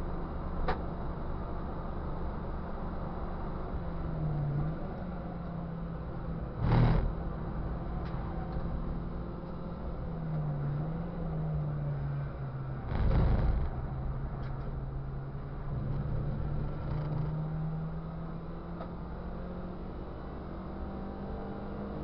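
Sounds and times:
race car engine under load: 4.8 - 10.7, 12.1 - 19.0
loud rumble: 12.8 - 14.2.

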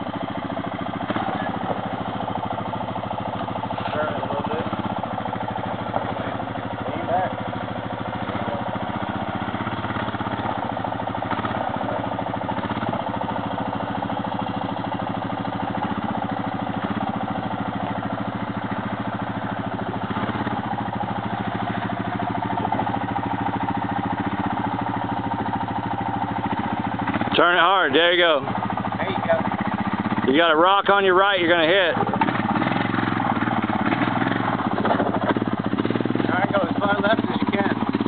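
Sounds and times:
atv engine at low revs: 0.0 - 38.0.

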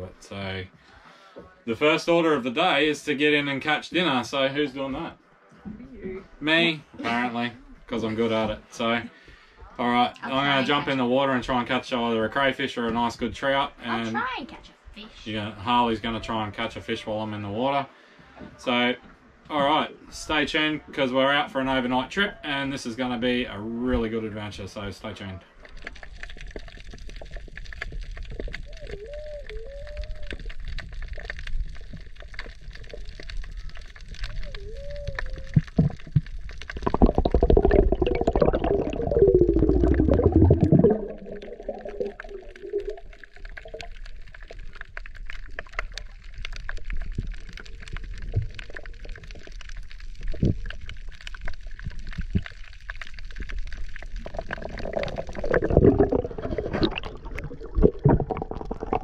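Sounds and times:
underwater gurgling and sloshing: 20.8 - 59.0
warbling bubble tones: 25.5 - 59.0.

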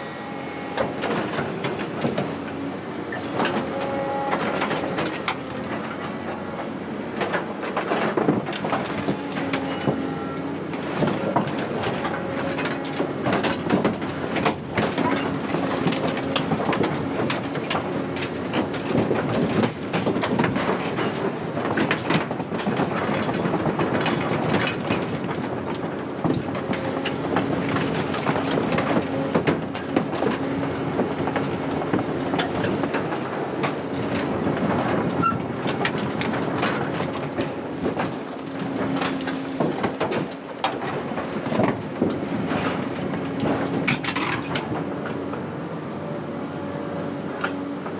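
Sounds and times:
hydraulic whine: 0.0 - 13.4
excavator diesel engine: 0.0 - 47.9
steel sheeting crumpling and clanking: 0.8 - 45.3.

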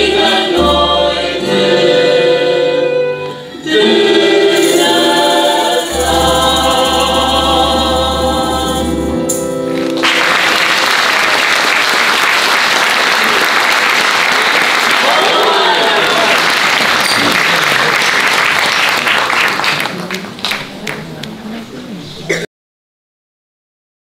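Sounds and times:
choir singing: 0.0 - 9.2
guitar: 2.8 - 10.3
audience applause: 9.8 - 21.1.

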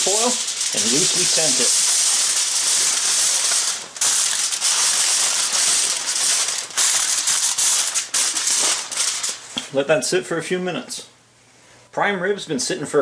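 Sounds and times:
aluminium foil crinkling: 0.0 - 9.6.

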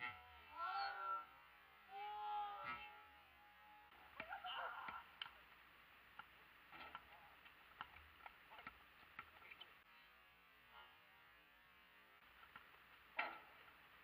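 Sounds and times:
distant shout: 0.0 - 5.2.

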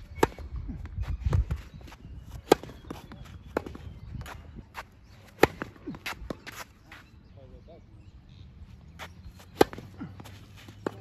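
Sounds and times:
tennis ball struck by rackets: 5.3 - 6.6, 9.5 - 11.0.

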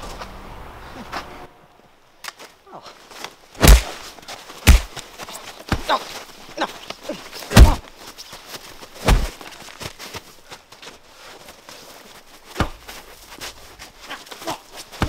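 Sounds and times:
heavy thuds of blows: 3.6 - 5.1, 7.5 - 7.9, 9.0 - 9.5, 12.5 - 12.9.

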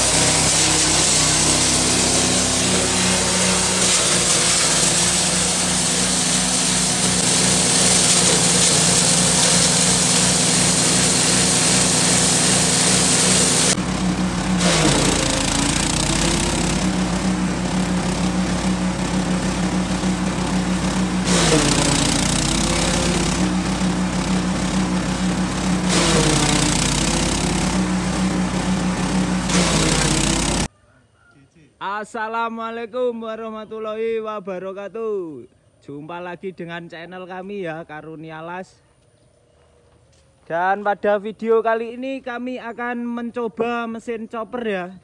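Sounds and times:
chopping grass stalks: 0.0 - 13.9, 14.5 - 28.4, 29.1 - 30.7
blades grinding corn cobs: 0.0 - 30.7
small petrol engine running: 0.0 - 30.7.

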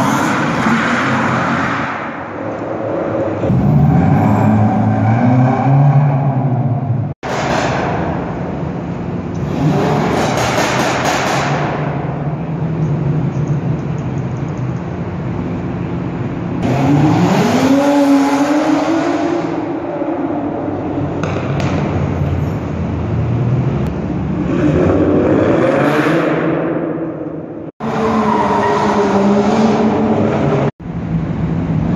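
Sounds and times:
car engines revving hard: 0.0 - 12.7, 16.5 - 27.0.

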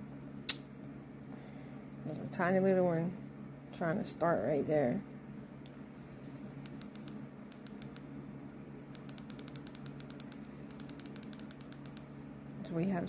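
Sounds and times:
steady low hum: 0.0 - 13.0
remote control buttons clicking: 6.6 - 8.0, 8.9 - 12.0.

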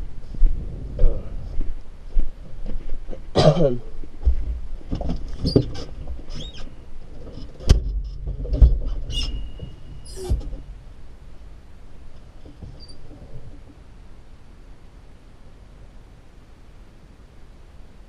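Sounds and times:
tractor rumbling: 0.0 - 18.0
creaking squeaks: 5.4 - 10.7, 12.4 - 13.7.

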